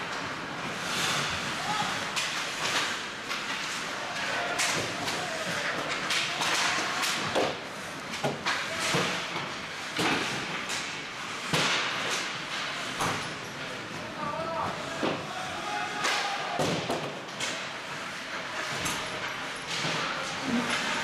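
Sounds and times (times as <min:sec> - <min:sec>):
skate blades scraping ice: 0:00.1 - 0:07.2.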